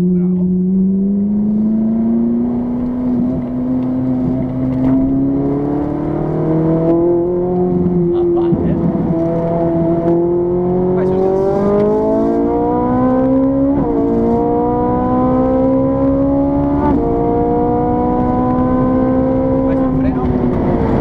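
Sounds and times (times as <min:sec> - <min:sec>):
car engine accelerating hard: 0:00.0 - 0:21.0.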